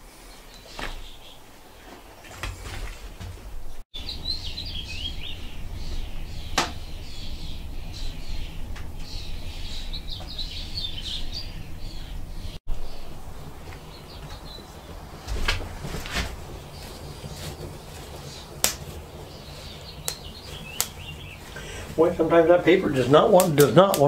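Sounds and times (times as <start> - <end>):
songbirds chirping: 0.0 - 24.0
steady low rumble: 3.4 - 23.3.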